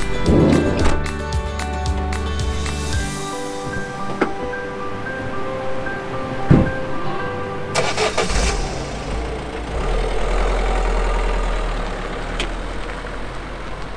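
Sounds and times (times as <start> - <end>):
thump: 6.5 - 6.7
van engine cranking and idling: 7.7 - 13.9.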